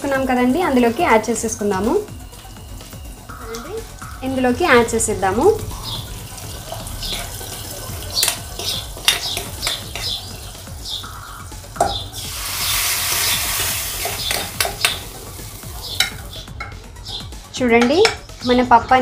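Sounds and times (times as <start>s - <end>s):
hot oil sizzling: 0.0s - 16.7s
metal spoon scraping a pan: 12.2s - 15.1s.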